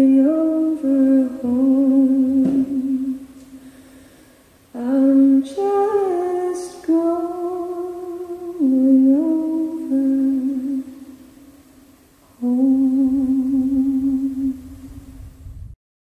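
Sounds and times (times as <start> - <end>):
woman humming folk melody: 0.0 - 3.3, 4.8 - 11.0, 12.4 - 15.0.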